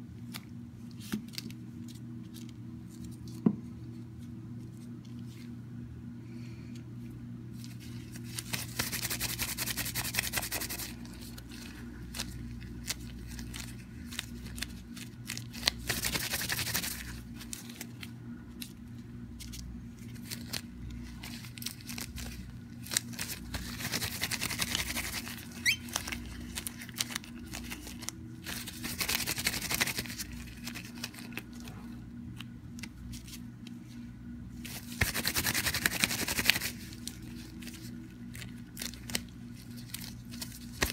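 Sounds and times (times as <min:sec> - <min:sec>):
steady low hum: 0:00.0 - 0:40.9
hands rubbing clay on paper: 0:07.6 - 0:17.9, 0:19.4 - 0:31.7, 0:34.6 - 0:40.9.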